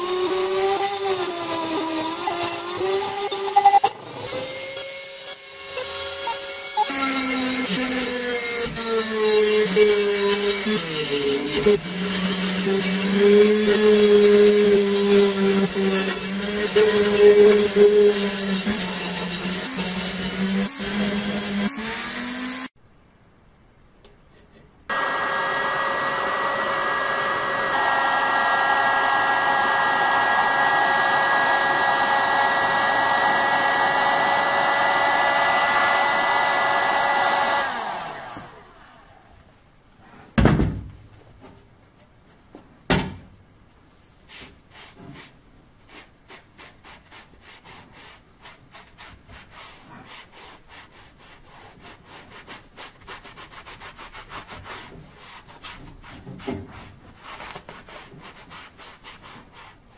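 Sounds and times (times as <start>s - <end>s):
hot-air blower running: 24.9s - 39.2s.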